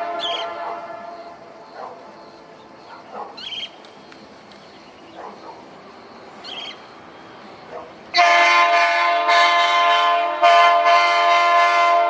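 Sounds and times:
locomotive air horn blasts: 0.0 - 1.6, 8.2 - 12.0.

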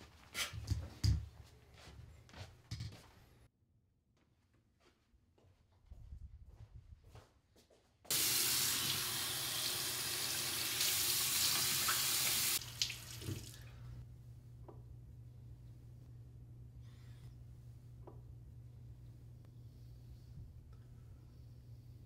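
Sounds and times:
soft footsteps: 0.0 - 3.4, 4.2 - 8.1
faucet running into sink: 8.1 - 13.6
low hum: 13.6 - 22.0.

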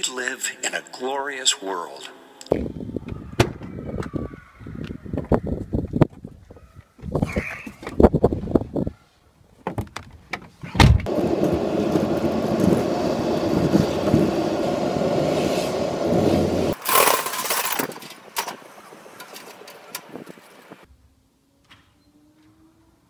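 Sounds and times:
car engine and road noise: 9.6 - 20.9.

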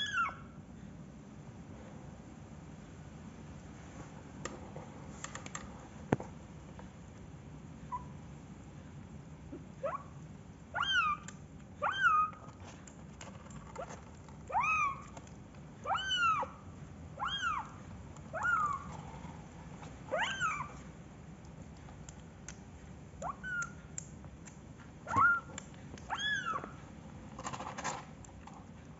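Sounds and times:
kitten meowing: 0.0 - 0.4, 10.8 - 12.5, 14.5 - 15.2, 15.8 - 16.6, 17.2 - 18.9, 20.1 - 20.8, 23.2 - 23.8, 25.1 - 26.8.

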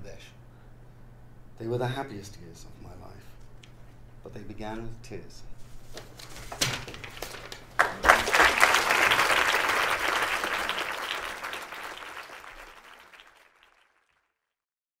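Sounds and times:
audience applauding: 7.0 - 14.3.

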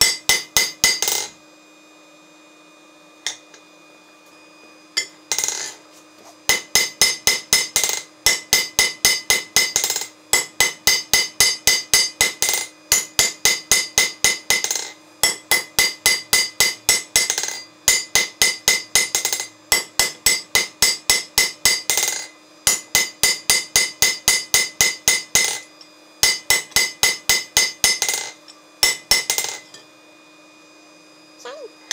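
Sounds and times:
anvil ringing: 0.0 - 1.3, 5.0 - 5.8, 6.5 - 29.8
hammer striking hot steel: 0.0 - 1.4, 3.2 - 3.6, 5.0 - 5.8, 6.5 - 29.8.

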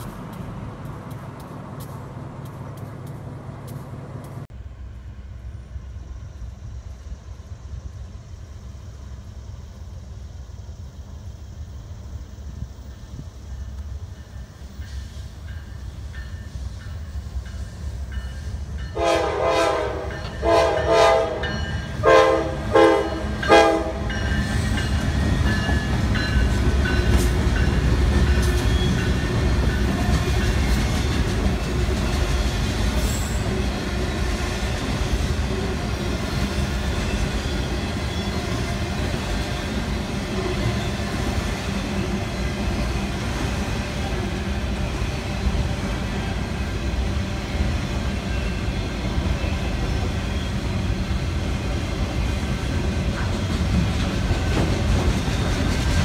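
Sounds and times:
freight train rumbling past: 0.0 - 56.0
locomotive air horn blasts: 19.0 - 24.2.

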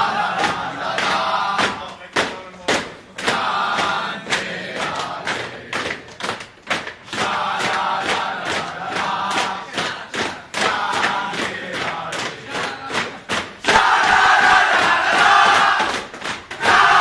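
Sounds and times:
group chanting and shouting: 0.0 - 17.0
rhythmic thuds: 0.0 - 17.0.

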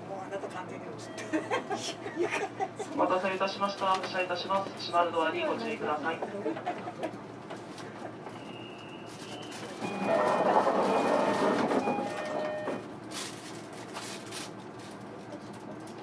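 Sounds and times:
train doors knocking shut: 9.9 - 12.8.

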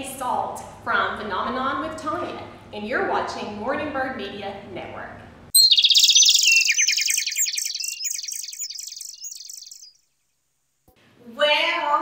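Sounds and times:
bird chirps and trills: 5.6 - 10.0.

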